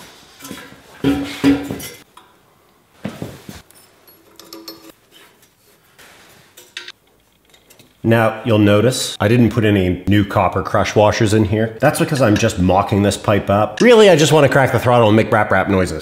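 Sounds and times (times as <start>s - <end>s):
metal clinks and clanks: 3.6s - 5.0s.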